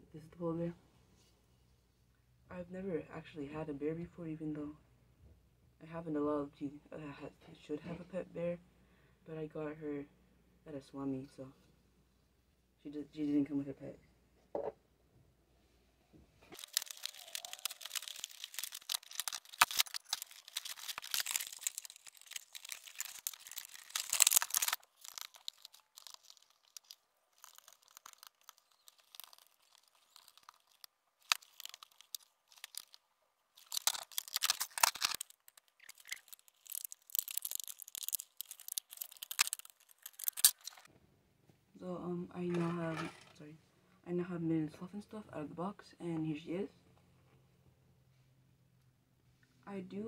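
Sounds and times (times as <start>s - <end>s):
packaging tearing and crinkling: 16.5s - 40.9s.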